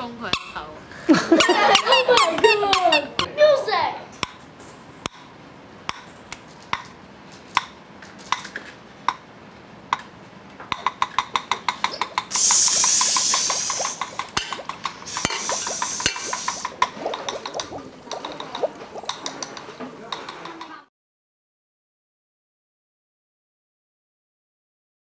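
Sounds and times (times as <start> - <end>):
taps and clicks on household objects: 9.9 - 12.4, 13.0 - 20.8
bursts of hiss: 12.3 - 17.1.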